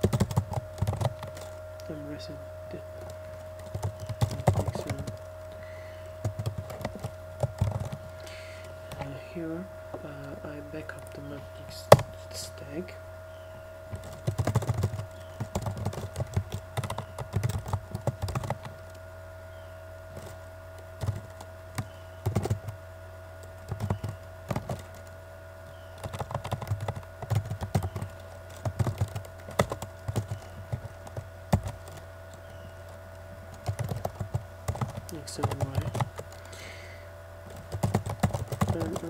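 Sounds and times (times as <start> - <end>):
typing on a keyboard: 0.0 - 1.6, 3.1 - 5.3, 6.2 - 8.0, 14.0 - 19.0, 21.0 - 22.8, 23.6 - 25.1, 26.0 - 36.6, 37.5 - 39.0
steady background hum: 0.0 - 39.0.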